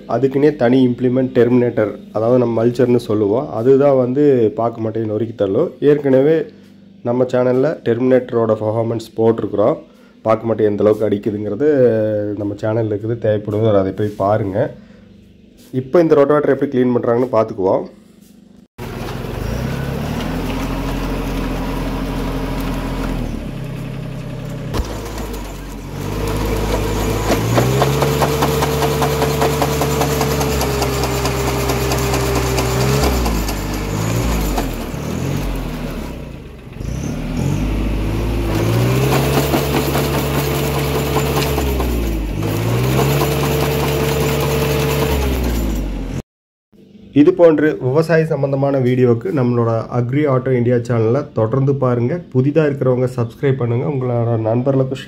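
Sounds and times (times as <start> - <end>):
tiller blades clattering: 18.8 - 36.9, 38.3 - 46.0
diesel tractor engine under load: 18.8 - 46.2.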